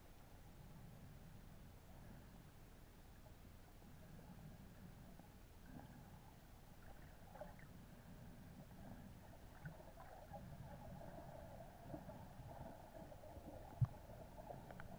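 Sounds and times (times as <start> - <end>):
low underwater rumble: 0.1 - 14.9
faint crackles: 3.2 - 14.9.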